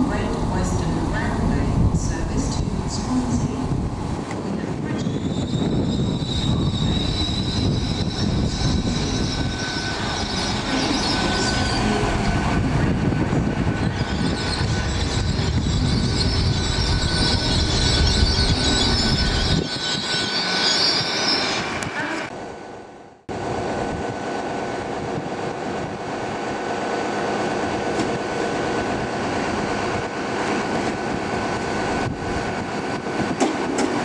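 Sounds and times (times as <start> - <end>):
rumble of train wheels on rails: 0.0 - 34.0
high-pitched wheel squeal: 5.0 - 12.0, 13.8 - 22.3.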